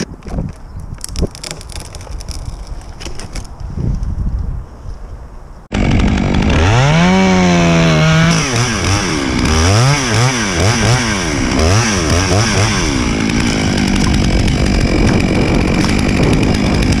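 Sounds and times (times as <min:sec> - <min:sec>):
chainsaw cutting wood: 0:01.0 - 0:03.3, 0:05.7 - 0:17.0.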